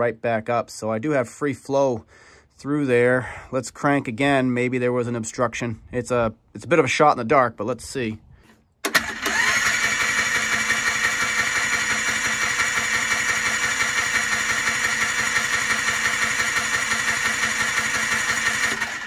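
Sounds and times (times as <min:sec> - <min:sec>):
engine cranked by electric starter: 0:08.4 - 0:19.0.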